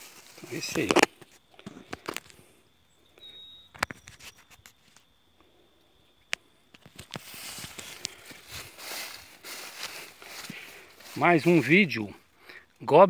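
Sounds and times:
rustling: 0.0 - 2.4, 6.8 - 11.7
dry grass and twigs crackling: 0.0 - 13.0.

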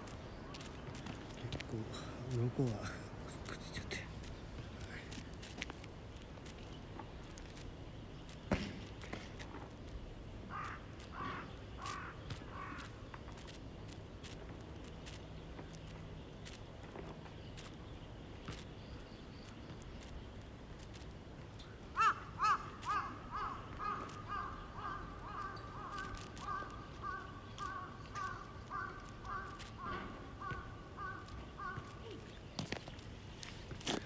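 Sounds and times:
bird calling repeated notes: 21.9 - 33.0.

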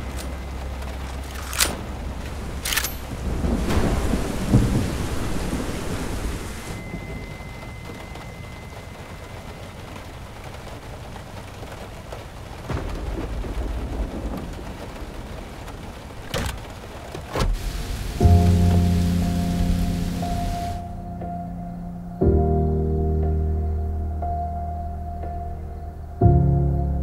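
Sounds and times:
rain on a car roof: 0.0 - 21.0
thunder rumbling: 0.0 - 21.2
faint high steady tone: 6.7 - 10.1.

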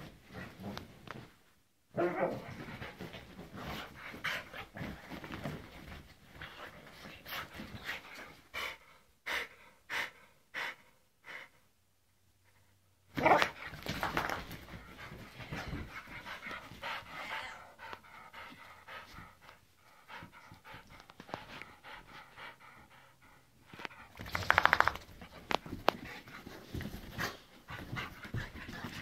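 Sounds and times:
dog panting: 14.7 - 24.2.

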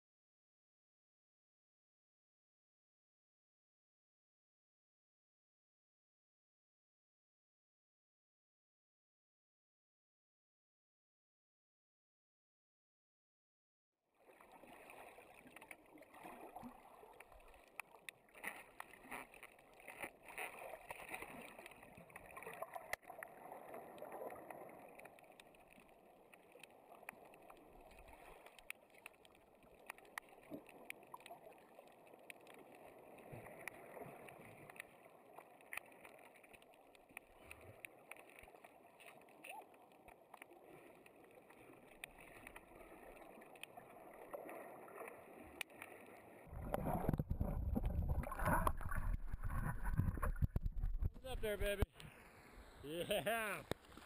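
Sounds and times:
underwater clicks and crackles: 14.2 - 52.2, 53.4 - 54.0.

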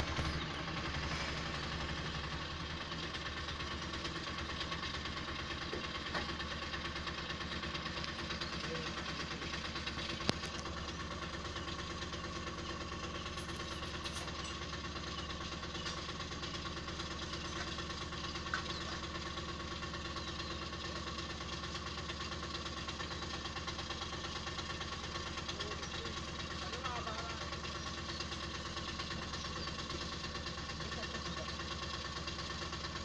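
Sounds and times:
vehicle engine idling: 0.0 - 33.0.

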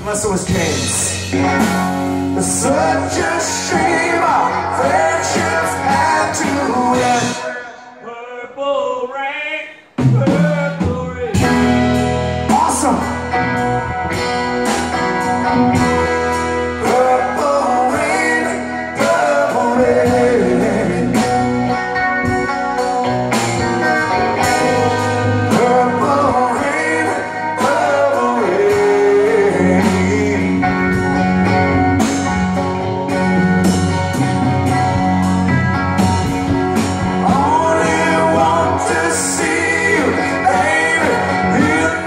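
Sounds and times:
bending guitar melody: 0.0 - 8.0, 11.3 - 42.0
rock band playing slow ballad: 0.0 - 8.0, 9.9 - 42.0.

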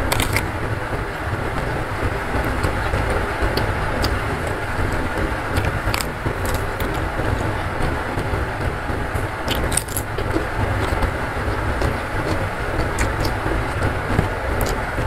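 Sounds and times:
chewing: 0.0 - 0.5, 5.5 - 7.0, 9.4 - 14.9
rumbling background noise: 0.0 - 15.0.

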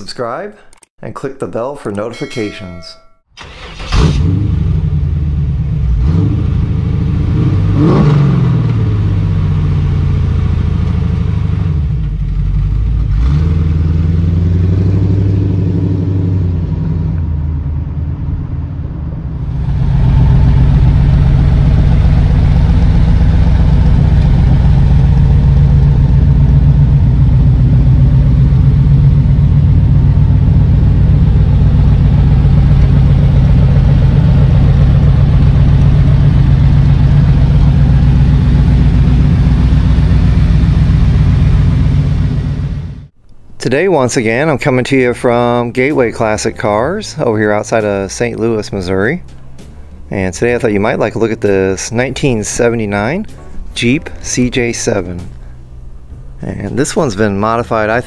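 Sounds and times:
engine revving and idling: 3.6 - 43.2.

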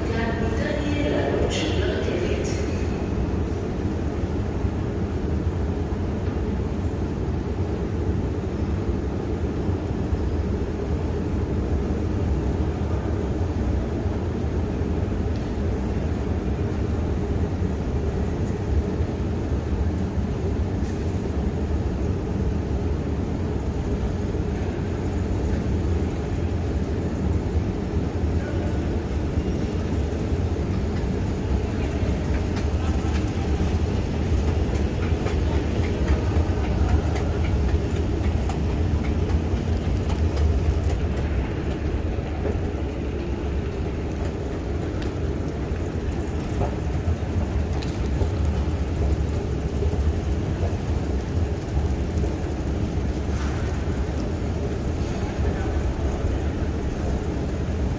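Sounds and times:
escalator running low rumble: 0.0 - 57.9.

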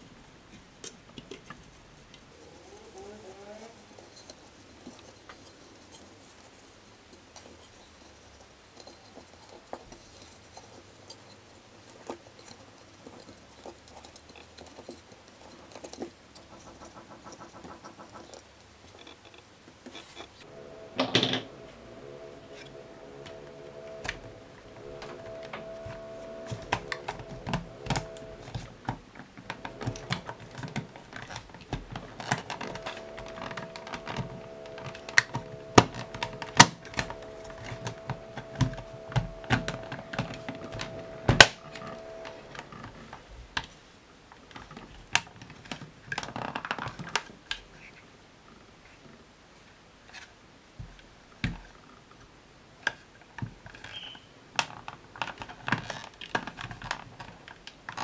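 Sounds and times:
plastic parts clicking and knocking: 0.0 - 2.8, 7.1 - 47.9, 50.1 - 52.2, 52.8 - 58.0
faint steady hum: 0.0 - 58.0
plastic scrape: 7.4 - 43.8.

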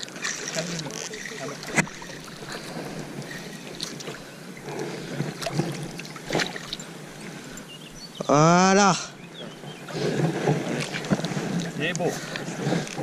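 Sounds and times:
fish thrashing in water: 0.0 - 7.1
landing net pushed through water: 0.0 - 7.6, 9.7 - 13.0.

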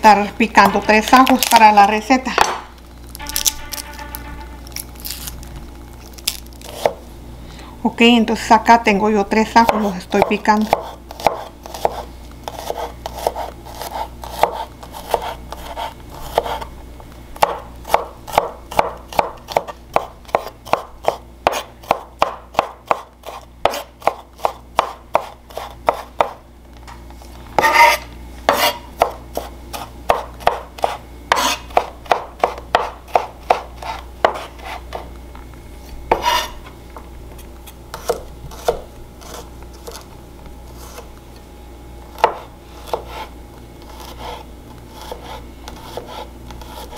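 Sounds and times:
knife blade scraping: 3.1 - 5.4, 27.6 - 29.5, 30.8 - 31.7, 36.1 - 36.7, 42.3 - 46.9
knife chopping on wooden board: 6.6 - 7.0, 9.6 - 16.7, 17.4 - 26.4, 27.6 - 35.0, 36.1 - 36.5, 37.9 - 40.0, 42.1 - 43.3, 43.9 - 46.9.

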